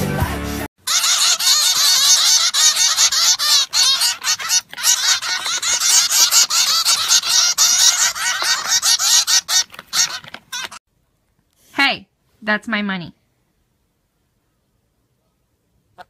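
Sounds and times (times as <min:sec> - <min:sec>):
finches chattering calls: 0:00.9 - 0:10.8.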